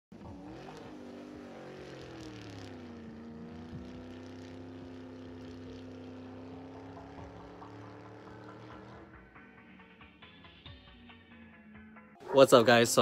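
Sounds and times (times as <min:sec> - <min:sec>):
car engine revs dropping: 0:00.2 - 0:09.3.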